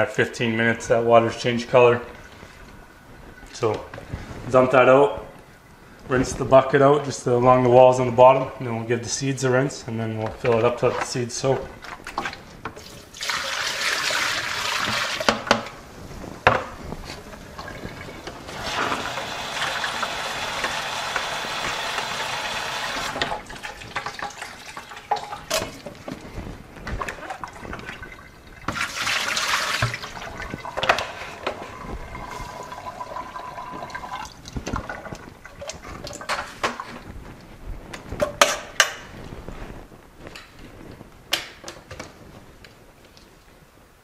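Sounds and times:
pail knocking and clattering: 0:10.3 - 0:15.8, 0:16.4 - 0:37.0
water rushing into plastic pail: 0:10.5 - 0:15.8, 0:16.5 - 0:37.0
water pouring into sink: 0:12.8 - 0:15.5, 0:17.3 - 0:25.9, 0:26.9 - 0:36.8.

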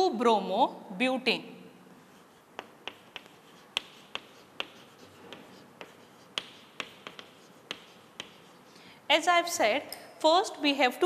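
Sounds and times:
chalk tapping on blackboard: 0:02.0 - 0:08.8.

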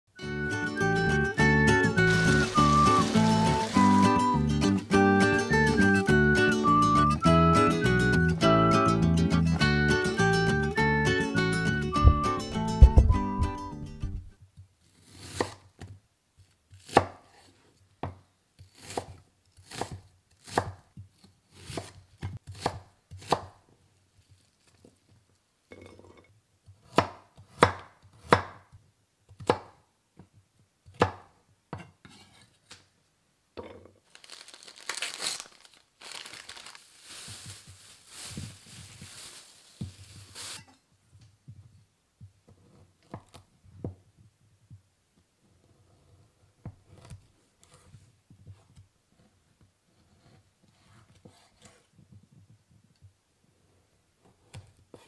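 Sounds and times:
knife chopping on wooden board: 0:21.6 - 0:23.5, 0:26.9 - 0:28.6, 0:29.4 - 0:29.8
knife scraping on board: 0:31.8 - 0:32.6.

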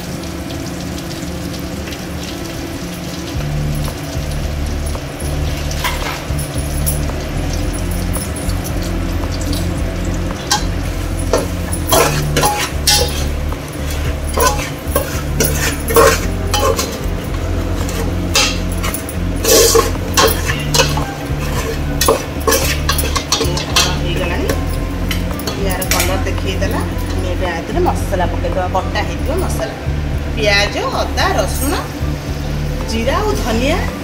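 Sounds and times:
steady low hum: 0:02.9 - 0:34.0
metal spatula scraping pot: 0:10.5 - 0:27.3.

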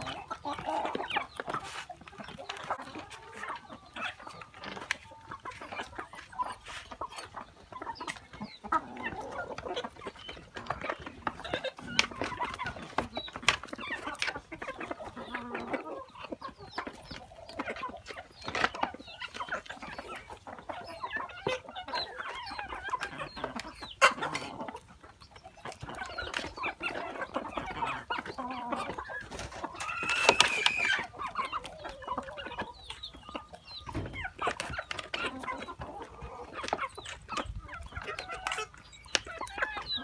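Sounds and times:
hens and roosters clucking: 0:00.0 - 0:40.0
high-pitched chicken call: 0:29.8 - 0:31.2.

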